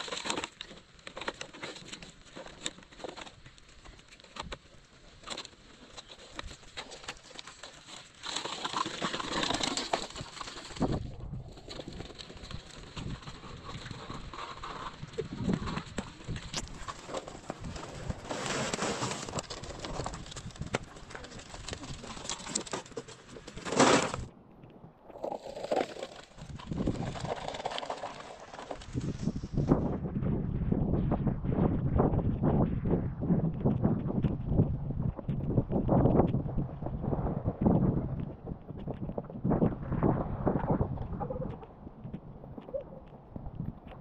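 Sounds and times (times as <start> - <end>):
toy wheelbarrow rattling over gravel: 0.0 - 24.3, 25.2 - 29.4
rubble crunching: 0.0 - 44.0
soil and stones tipped out: 6.4 - 24.3, 25.1 - 29.8.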